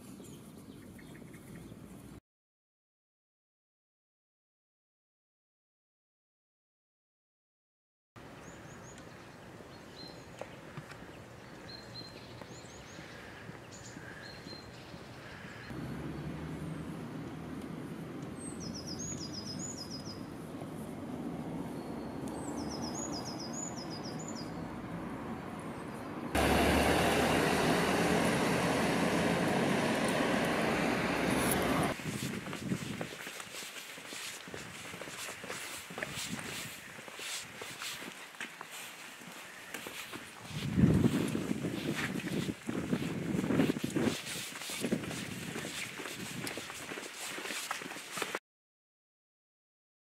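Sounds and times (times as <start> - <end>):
distant traffic hum: 8.2 - 32.5
birds chirping: 8.4 - 17.0, 18.3 - 20.4, 21.7 - 26.6
loud rushing noise: 26.4 - 32.0.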